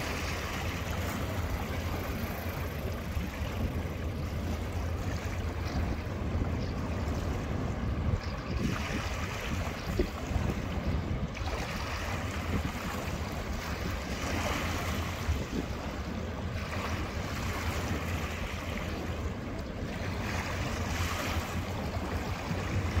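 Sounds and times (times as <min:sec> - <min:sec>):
river water rushing: 0:00.0 - 0:02.8
wind buffeting microphone: 0:00.0 - 0:23.0.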